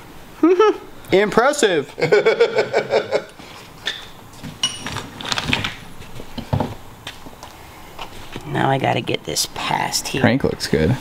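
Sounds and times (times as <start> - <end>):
metal parts and tools clinking: 4.6 - 5.7.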